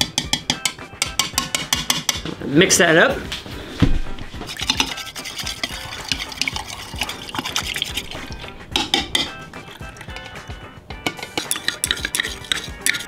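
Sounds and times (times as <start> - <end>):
rod clinking against glass beaker: 11.1 - 13.0.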